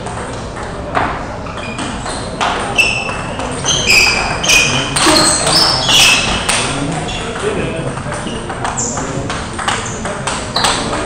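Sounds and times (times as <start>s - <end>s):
high-pitched shoe squeaks: 1.5s - 6.6s, 8.3s - 9.1s.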